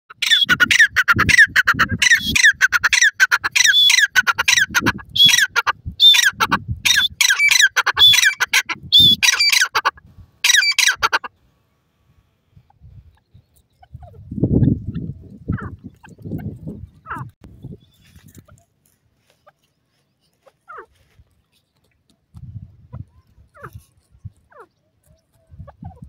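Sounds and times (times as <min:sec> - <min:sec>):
francolin calling harshly: 0:00.1 - 0:11.3.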